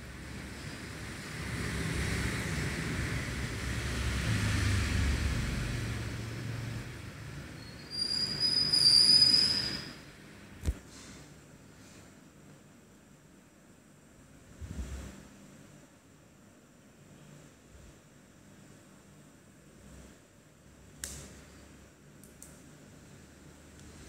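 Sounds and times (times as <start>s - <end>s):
passing vehicle rumble: 0.2s - 7.5s
high-pitched squeal: 7.6s - 10.0s.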